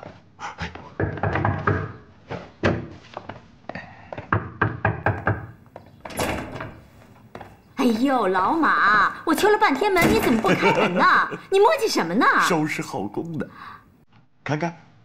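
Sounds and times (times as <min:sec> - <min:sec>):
knocking on a door: 0:01.0 - 0:02.0, 0:04.2 - 0:05.6.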